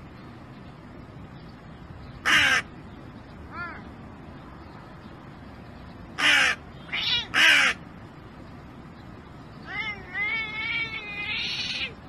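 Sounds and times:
crow calling: 0:02.2 - 0:02.7, 0:06.2 - 0:07.8
cat calling: 0:06.2 - 0:07.8, 0:09.6 - 0:12.0.

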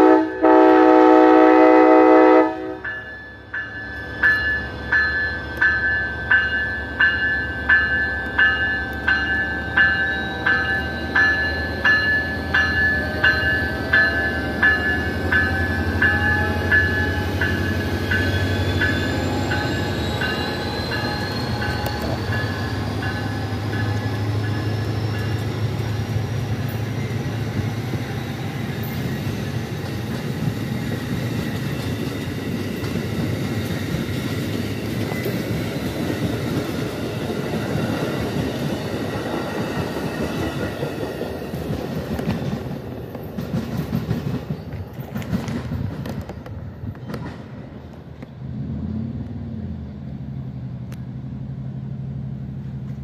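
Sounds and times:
locomotive engine drone: 0:00.0 - 0:41.3, 0:47.8 - 0:53.0
train wheels on rails: 0:00.0 - 0:53.0
locomotive bell ringing: 0:02.5 - 0:41.0
clacking over rail joints: 0:39.8 - 0:48.3.

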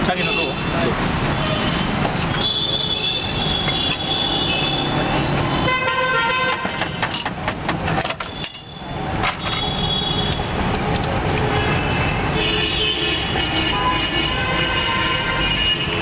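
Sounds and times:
busy street traffic: 0:00.0 - 0:16.0
vehicle horns: 0:01.4 - 0:07.2, 0:08.3 - 0:10.6, 0:11.5 - 0:16.0.

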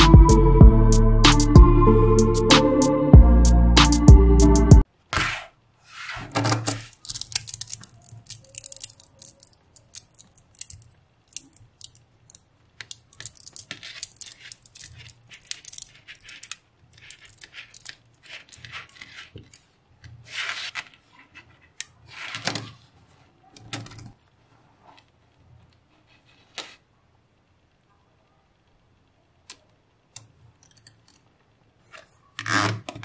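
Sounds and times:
magnetic balls clicking: 0:06.9 - 0:17.9.

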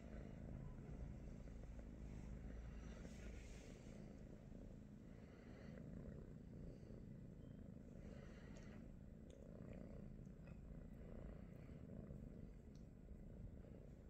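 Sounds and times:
kitten purring: 0:00.0 - 0:14.0
faint ticks: 0:12.6 - 0:13.0.

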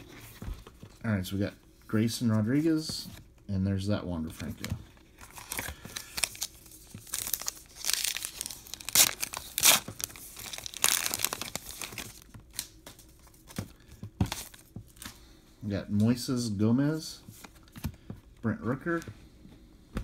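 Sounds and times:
plastic wrapper tearing and crinkling: 0:05.2 - 0:12.8.

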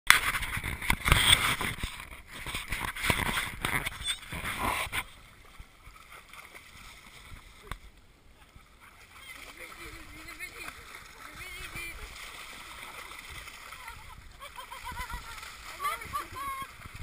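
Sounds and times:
dog wading through water: 0:02.4 - 0:17.0
wind buffeting microphone: 0:13.4 - 0:17.0.

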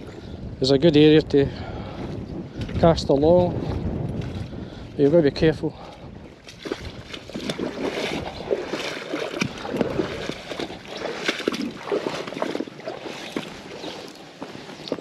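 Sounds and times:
water lapping at shore: 0:03.6 - 0:15.0.

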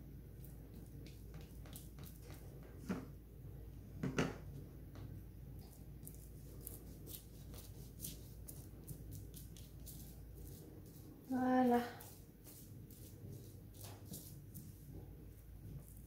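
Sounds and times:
brush bristles rasping: 0:06.0 - 0:14.9.

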